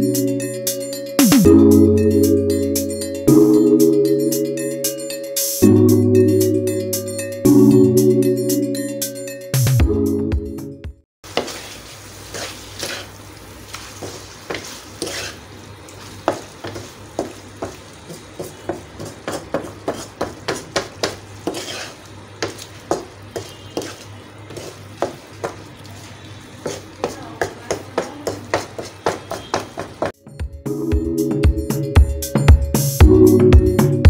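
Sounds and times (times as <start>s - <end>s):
meat sizzling in a pan: 11.2s - 30.2s
wooden spoon scraping and knocking: 11.3s - 15.4s, 16.0s - 25.7s, 26.6s - 30.2s.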